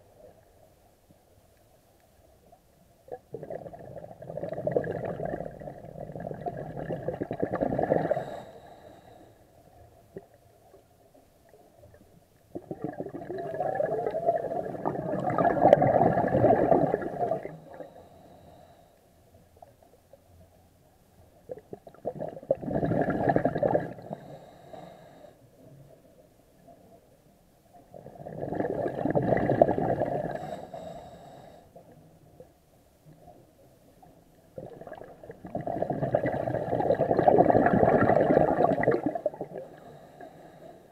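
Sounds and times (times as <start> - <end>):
underwater breath bubbles: 3.1 - 9.3, 12.5 - 18.9, 21.5 - 25.4, 27.9 - 31.8, 34.6 - 40.9.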